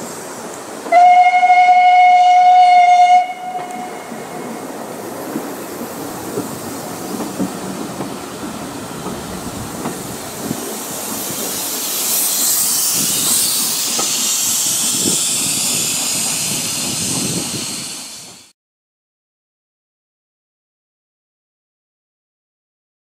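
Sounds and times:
train coaches rumbling past: 0:00.0 - 0:18.5
loud hiss of steam: 0:00.0 - 0:18.6
wheels clicking on rails: 0:03.6 - 0:18.4.

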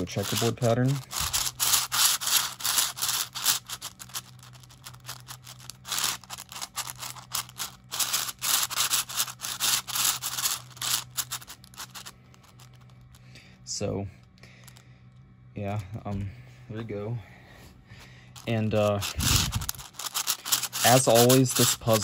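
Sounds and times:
puzzle cube clacking turns: 0:00.0 - 0:13.1, 0:18.4 - 0:22.0.

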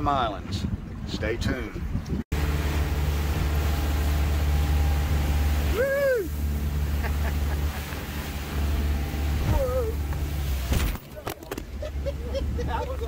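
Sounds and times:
wind and water noise: 0:00.0 - 0:13.0
motorboat engine running: 0:01.9 - 0:13.0
short rising and falling cry: 0:05.4 - 0:06.4.

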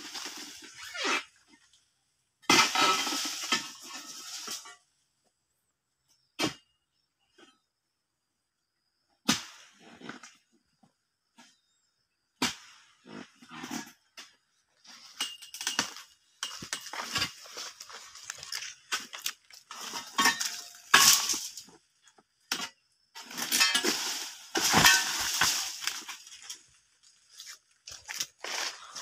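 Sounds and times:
dry palm fronds rustling: 0:15.6 - 0:21.6, 0:23.2 - 0:29.0
fronds crashing through leaves: 0:23.2 - 0:26.6.

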